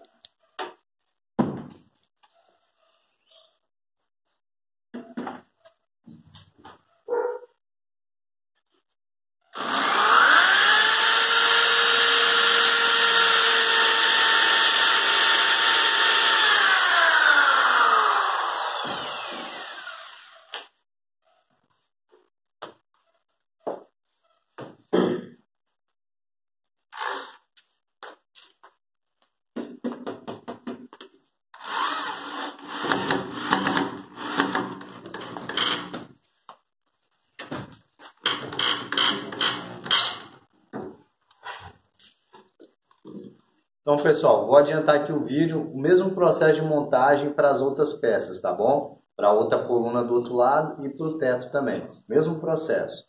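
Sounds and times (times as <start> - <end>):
electric drill motor whining: 9.6 - 20.6, 31.6 - 36.0.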